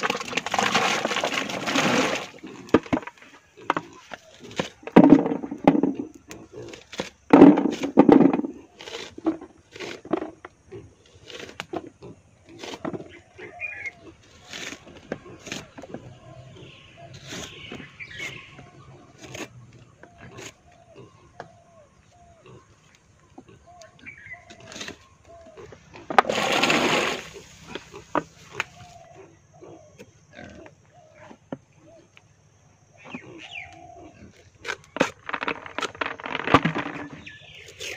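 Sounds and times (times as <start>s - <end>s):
knife cutting and peeling bananas: 6.2s - 8.0s, 8.6s - 13.6s, 14.2s - 16.4s, 23.8s - 26.8s
chirping animal calls: 12.6s - 26.1s, 27.4s - 32.2s, 32.9s - 34.9s.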